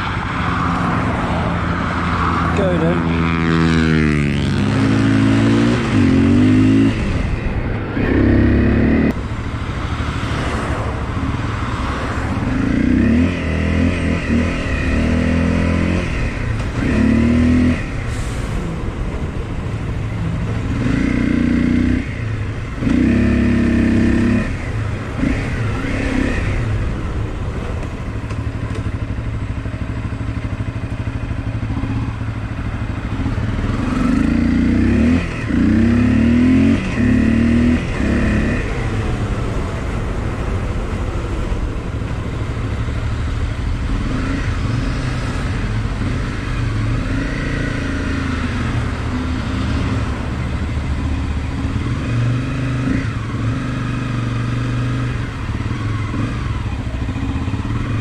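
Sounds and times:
motorcycle engine revving: 0:00.0 - 0:27.2, 0:27.8 - 0:42.0, 0:42.6 - 0:58.0.

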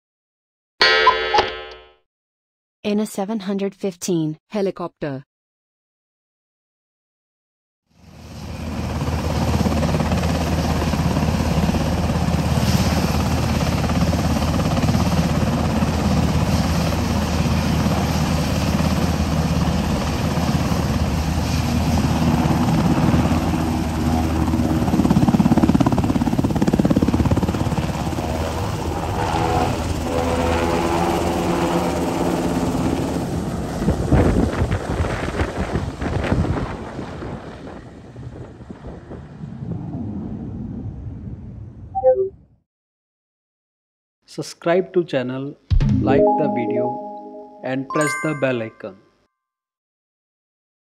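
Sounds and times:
helicopter rotor and turbine: 0:08.0 - 0:42.3.

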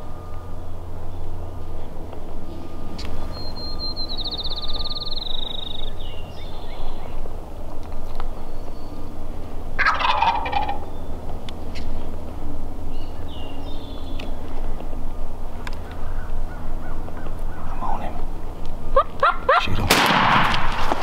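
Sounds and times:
steady low rumble: 0:00.0 - 0:21.0
turkey gobbling: 0:09.8 - 0:10.9, 0:18.9 - 0:19.8.

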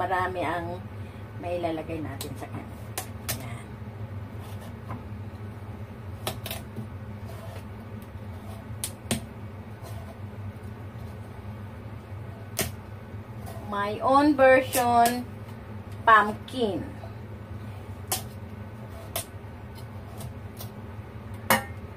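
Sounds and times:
steady low hum: 0:00.0 - 0:21.9
pumpkin flesh being scraped: 0:04.3 - 0:04.9.

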